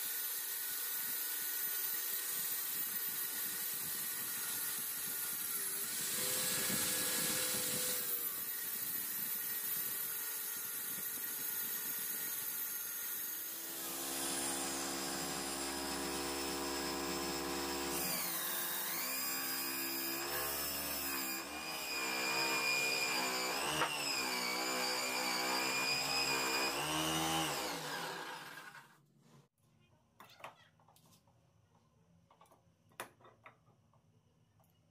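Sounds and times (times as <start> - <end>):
angle grinder grinding wood: 0.0 - 29.0.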